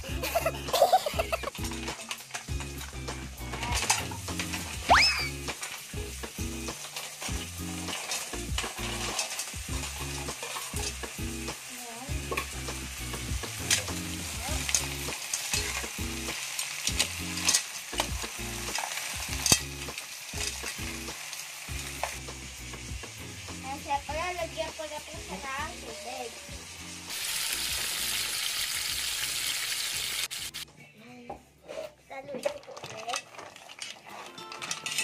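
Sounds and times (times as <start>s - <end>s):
mussels sizzling in a pot: 0.0s - 30.6s, 32.3s - 35.0s
spoon stirring mussels: 1.0s - 23.0s, 32.2s - 35.0s.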